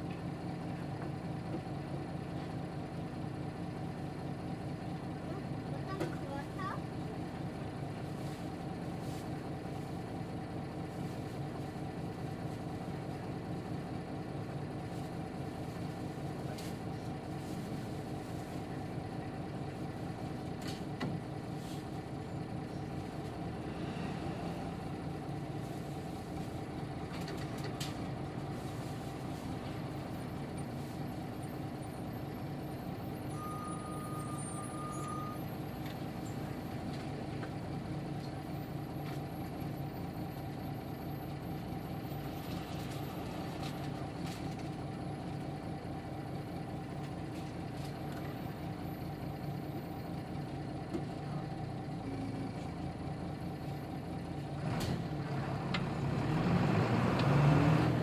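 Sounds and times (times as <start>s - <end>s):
bus diesel engine running: 0.0s - 58.0s
short high beep: 33.3s - 35.5s.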